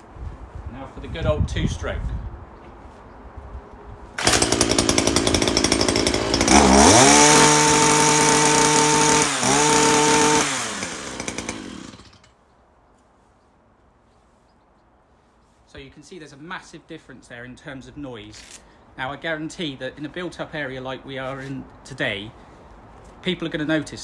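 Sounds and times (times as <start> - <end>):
hedge trimmer engine revving: 4.2 - 12.3.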